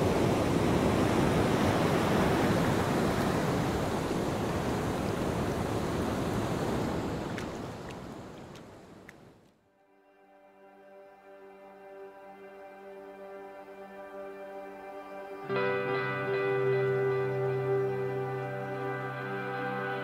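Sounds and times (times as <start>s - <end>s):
sea waves rushing: 0.0s - 9.4s.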